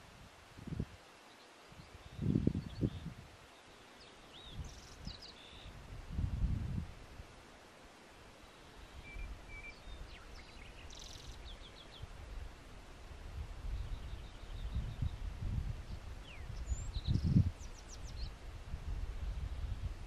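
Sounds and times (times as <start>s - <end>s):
small birds chirping: 1.2s - 5.8s, 8.3s - 12.4s, 13.6s - 18.4s.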